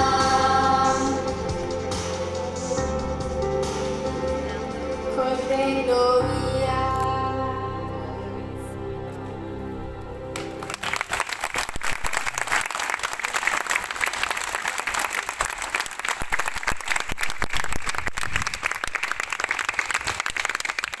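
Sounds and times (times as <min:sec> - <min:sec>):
song held note with music: 0:00.0 - 0:10.8
audience applauding: 0:10.4 - 0:21.0.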